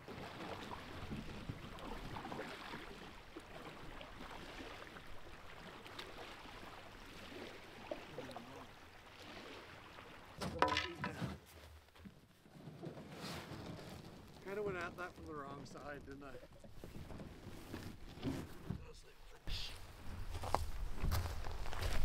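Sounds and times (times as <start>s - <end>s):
water lapping at shore: 0.0s - 12.6s, 13.5s - 20.9s
paddles splashing in water: 0.0s - 18.9s
person's voice: 10.4s - 11.4s, 18.8s - 19.8s.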